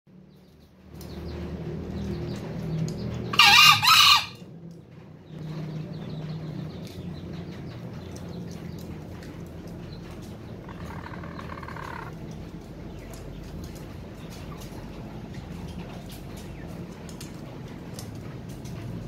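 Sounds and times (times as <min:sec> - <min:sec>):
junglefowl crowing: 0:03.3 - 0:04.4, 0:10.6 - 0:12.1.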